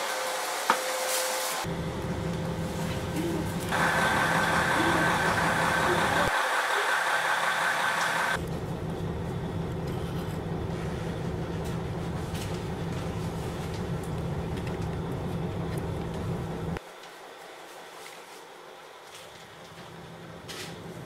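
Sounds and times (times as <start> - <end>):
railcar engine drone: 1.5 - 17.4
hissy railcar from platform: 2.8 - 8.4.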